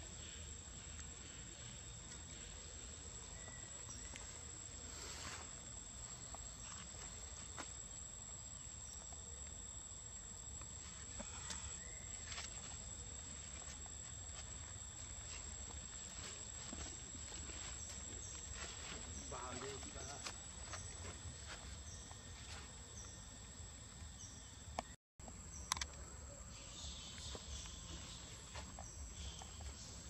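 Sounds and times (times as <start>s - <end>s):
small clicks: 25.6s - 26.0s.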